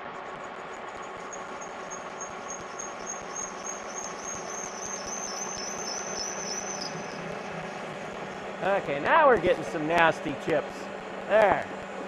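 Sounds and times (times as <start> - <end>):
lathe machine hum: 0.1 - 12.0
high chirp from lathe cutting: 0.7 - 8.6.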